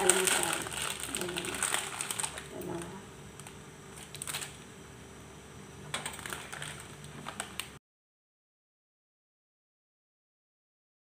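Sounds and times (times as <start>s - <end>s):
plastic wrapper crinkling: 0.0s - 4.6s, 5.9s - 7.8s.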